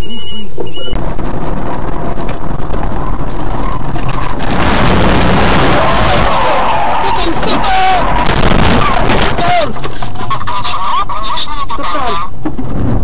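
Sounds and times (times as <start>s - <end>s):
wind noise: 0.0s - 10.5s
car engine: 0.0s - 13.0s
car road noise: 0.0s - 13.0s.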